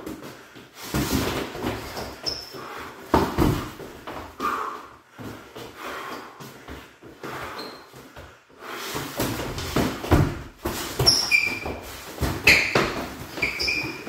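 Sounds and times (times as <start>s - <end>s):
sneakers squeaking on floor: 0.1s - 14.0s
boxing gloves thudding: 3.0s - 4.3s, 9.0s - 14.0s.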